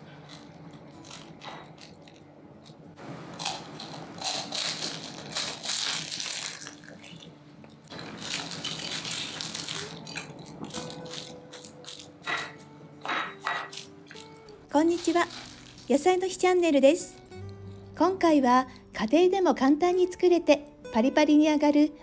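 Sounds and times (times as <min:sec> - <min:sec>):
spring rolls crunching: 0:03.4 - 0:12.6, 0:13.7 - 0:16.3.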